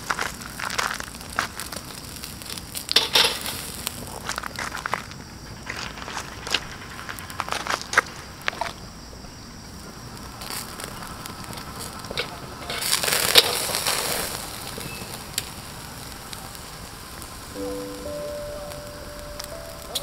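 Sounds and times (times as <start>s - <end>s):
hissing burst: 0.0s - 4.5s, 9.6s - 20.0s
fire crackling: 0.0s - 20.0s
fire popping: 0.0s - 20.0s
meat grilling: 0.0s - 20.0s.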